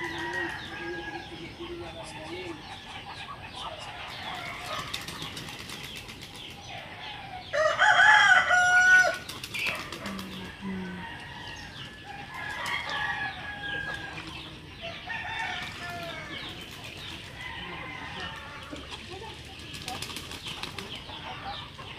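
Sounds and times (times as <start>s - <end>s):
rooster crowing: 0.0s - 1.4s, 7.4s - 9.2s, 10.6s - 14.2s, 14.8s - 16.5s.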